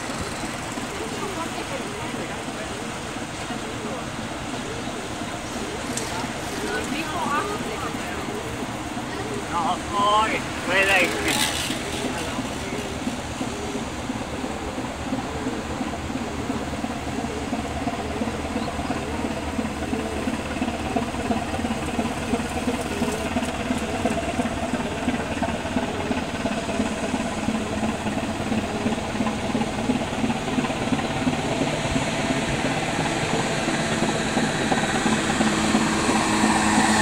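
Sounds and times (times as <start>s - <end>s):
engine drone with pulsing throb: 0.0s - 37.0s.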